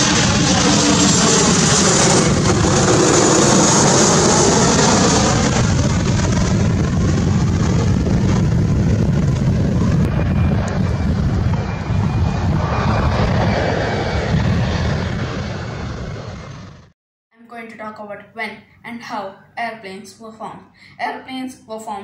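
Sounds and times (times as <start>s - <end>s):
jet airliner roar: 0.0s - 17.0s.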